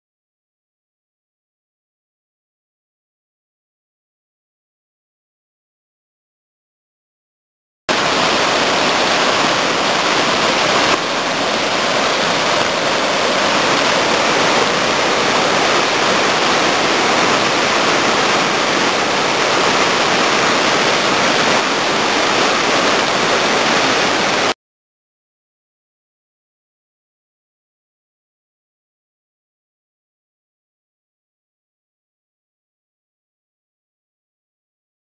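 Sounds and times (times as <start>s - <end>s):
river water rushing over boulders: 7.9s - 24.6s.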